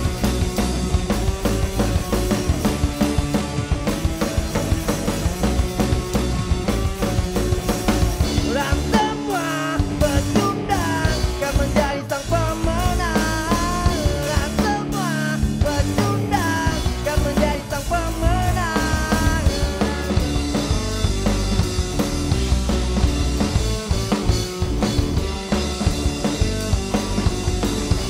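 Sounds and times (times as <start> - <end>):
punk rock band playing live: 0.0 - 28.0.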